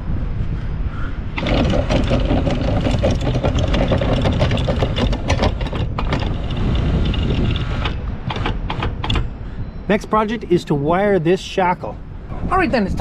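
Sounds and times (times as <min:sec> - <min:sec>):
windlass motor running: 0:01.2 - 0:10.4
chain links clanking: 0:01.4 - 0:09.4
short knocks: 0:01.4 - 0:09.4.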